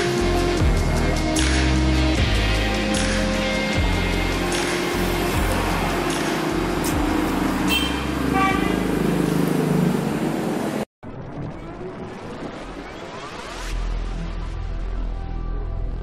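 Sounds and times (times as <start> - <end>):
traffic engines: 0.0 - 10.9
vehicle horn toot: 7.6 - 9.0.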